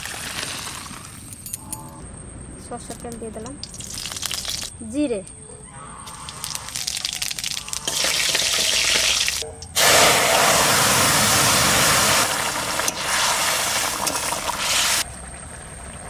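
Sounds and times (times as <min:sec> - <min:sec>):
seeds sizzling in hot oil: 0:03.6 - 0:04.7, 0:06.1 - 0:15.3
loud sizzling hiss: 0:06.4 - 0:15.1.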